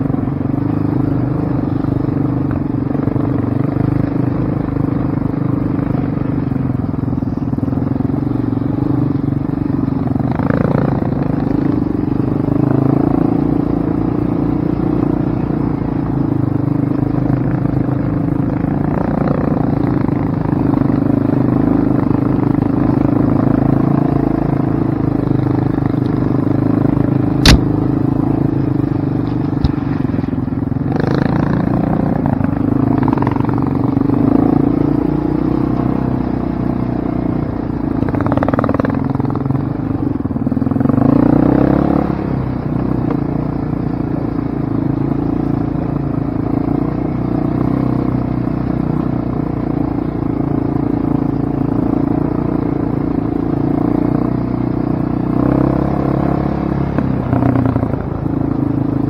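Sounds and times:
sharp knock: 27.4 - 27.7.

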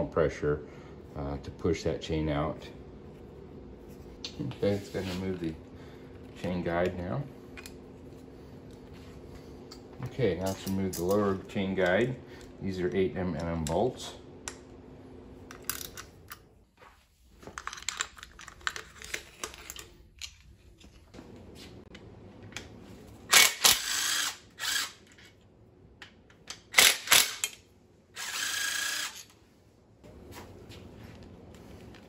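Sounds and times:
power tool motor whirring: 23.3 - 25.1, 28.2 - 29.3.

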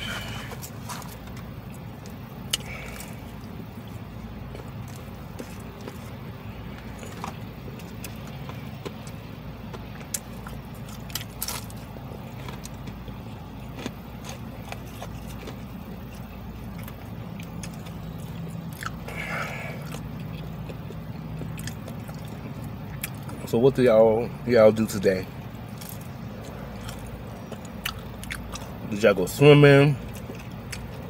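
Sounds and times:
person chewing: 0.0 - 23.5, 25.4 - 28.9, 30.0 - 31.0.

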